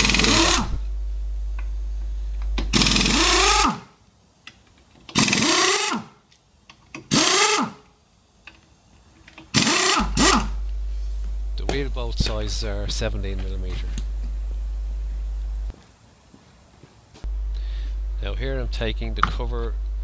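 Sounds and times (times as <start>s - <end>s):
pneumatic impact wrench whining: 0.0s - 0.9s, 2.5s - 4.0s, 5.0s - 6.2s, 7.0s - 7.9s, 9.3s - 10.6s
steady low hum: 0.0s - 20.0s.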